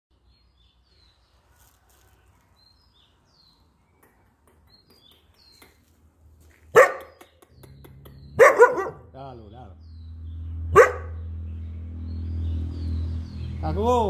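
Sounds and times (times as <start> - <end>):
dog barking: 6.7 - 7.2, 8.4 - 9.1, 10.7 - 11.3.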